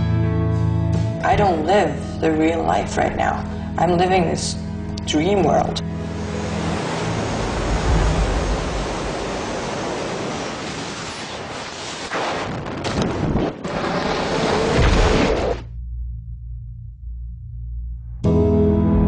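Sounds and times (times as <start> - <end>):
loud rushing wind: 6.0 - 15.6.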